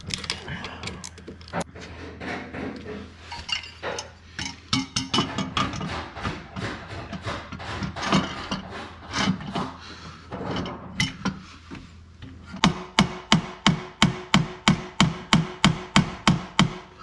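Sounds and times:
wrench clinking and scraping: 0:03.3 - 0:05.9.

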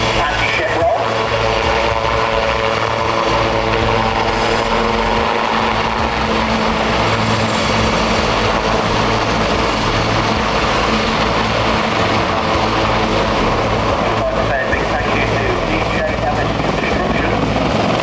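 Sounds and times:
helicopters flying: 0:00.0 - 0:18.0.

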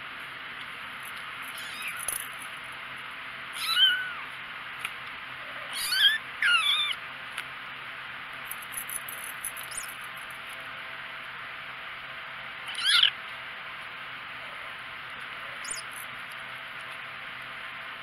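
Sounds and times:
kitten mewing: 0:01.5 - 0:02.1, 0:03.6 - 0:04.3, 0:05.4 - 0:07.0, 0:12.6 - 0:13.2.

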